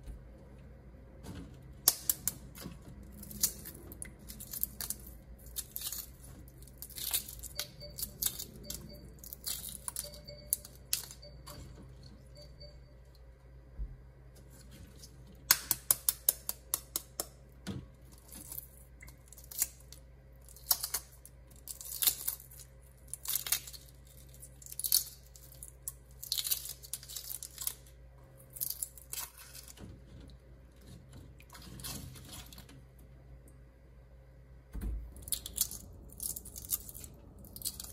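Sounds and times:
eggshells cracking: 0:01.8 - 0:11.1, 0:18.1 - 0:29.8, 0:35.2 - 0:37.9.

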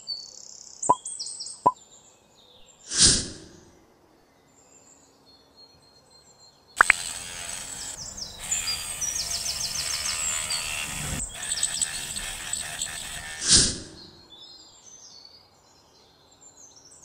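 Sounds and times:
high motor whine: 0:06.8 - 0:14.1
rotary tool grinding wood: 0:06.8 - 0:14.2
birds chirping: 0:06.8 - 0:14.3.

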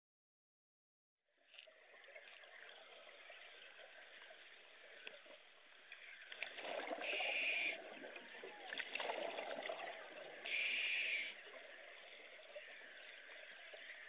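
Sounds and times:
bubbly exhalation underwater: 0:06.4 - 0:10.5
scuba regulator hissing inhale: 0:10.5 - 0:11.4.

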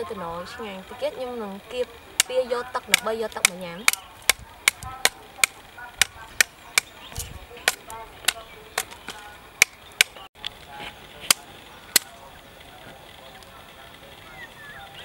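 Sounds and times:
knife chopping sugarcane: 0:02.2 - 0:10.3, 0:11.2 - 0:12.1.

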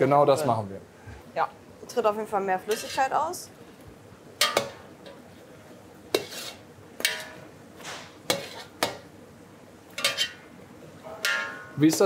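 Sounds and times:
spoon scraping metal pot: 0:02.7 - 0:03.1, 0:06.1 - 0:07.4, 0:08.3 - 0:08.8, 0:10.0 - 0:10.4.

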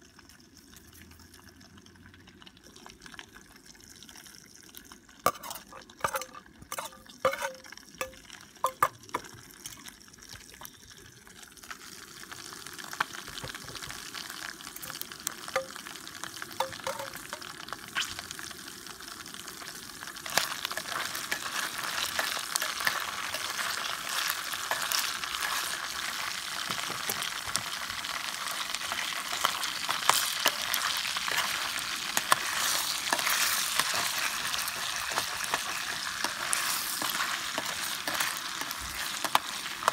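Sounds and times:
bacon sizzling in oil: 0:00.0 - 0:39.9
metal spoon scraping steel bowl: 0:05.3 - 0:08.9
spoon stirring clicks: 0:05.3 - 0:09.0, 0:16.6 - 0:17.4.

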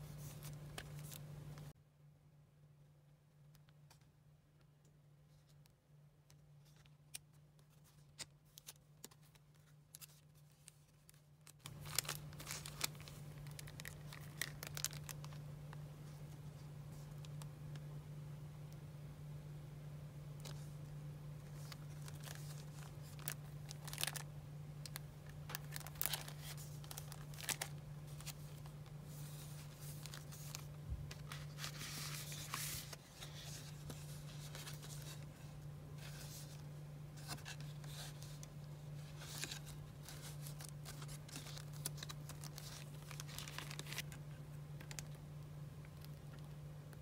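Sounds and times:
paper and plastic crinkling: 0:00.0 - 0:01.7, 0:06.6 - 0:15.4, 0:21.4 - 0:36.6, 0:37.2 - 0:45.2
steady low hum: 0:11.5 - 0:47.0.

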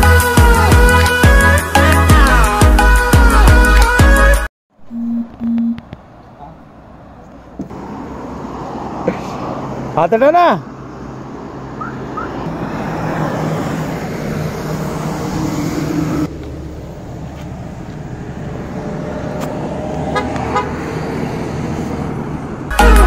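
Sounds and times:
road and engine noise in car: 0:04.9 - 0:23.0
vehicle horn tooting: 0:20.2 - 0:20.8.

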